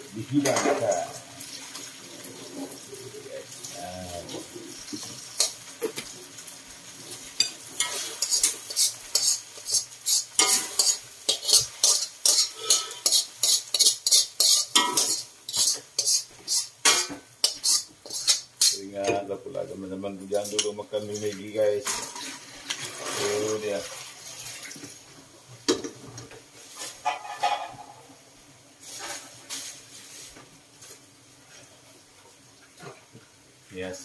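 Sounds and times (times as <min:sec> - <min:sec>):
metal spatula scraping a wok: 0:07.4 - 0:18.8, 0:26.7 - 0:27.9.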